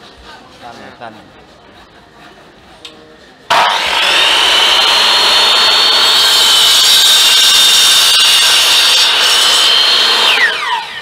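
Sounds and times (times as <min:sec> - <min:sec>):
miter saw cutting bamboo: 0:03.5 - 0:11.0.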